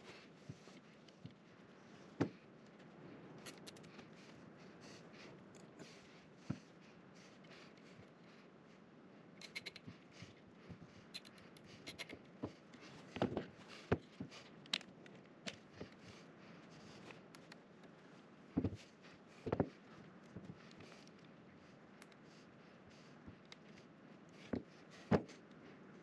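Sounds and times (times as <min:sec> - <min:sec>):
sharp snips: 0:09.4 - 0:09.9.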